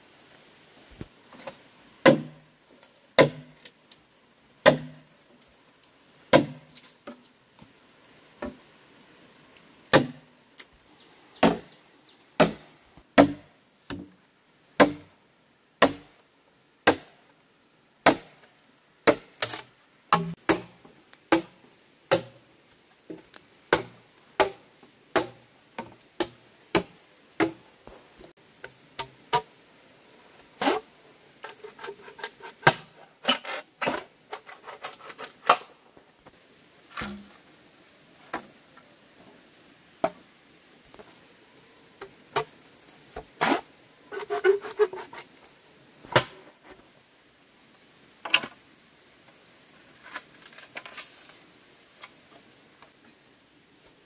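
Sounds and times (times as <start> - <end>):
machete chopping bamboo: 2.0 - 2.4, 3.2 - 3.7, 4.6 - 5.1, 6.3 - 7.2, 9.9 - 10.3, 11.4 - 11.8, 12.4 - 14.1, 14.8 - 15.1, 15.8 - 16.1, 16.8 - 17.2, 18.0 - 18.4, 19.0 - 22.4, 23.7 - 25.4, 26.2 - 27.6, 36.9 - 37.3, 46.1 - 46.4.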